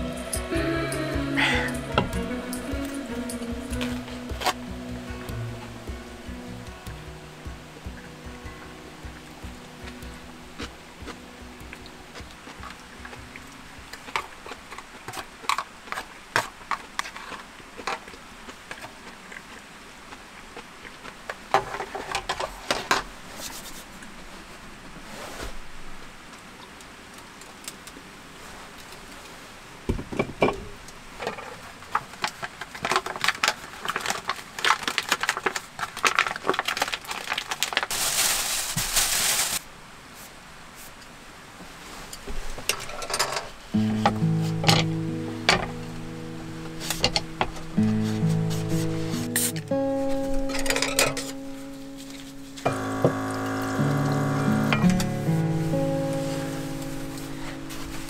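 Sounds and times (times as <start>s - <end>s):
foil crinkling: 3.8s - 4.7s, 14.0s - 18.2s, 31.6s - 39.7s, 45.7s - 58.0s
rustling: 21.3s - 26.1s, 31.2s - 52.9s, 54.6s - 58.0s
chopsticks clicking in foil tray: 32.0s - 37.9s.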